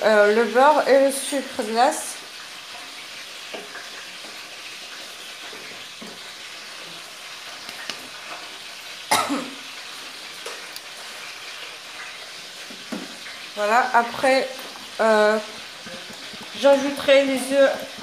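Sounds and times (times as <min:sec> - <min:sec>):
person coughing: 0:09.1 - 0:09.6.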